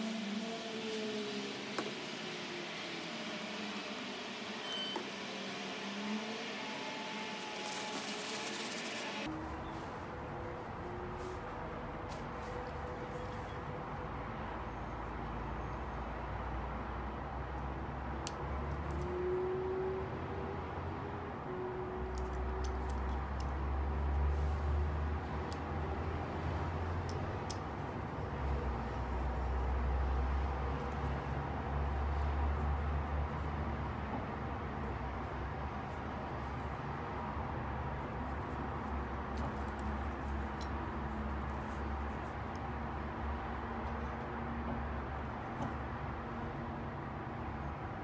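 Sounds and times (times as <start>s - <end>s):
steady background hiss: 0.0s - 9.4s
paper towel rustling: 7.3s - 10.0s.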